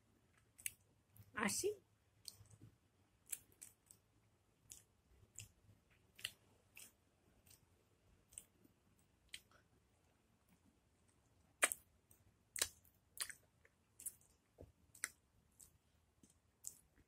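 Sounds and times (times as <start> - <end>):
wet mouth clicks of chewing: 0.4 - 0.8, 2.2 - 2.6, 3.2 - 4.0, 4.6 - 8.6, 9.2 - 9.6, 11.6 - 11.9, 12.5 - 17.0.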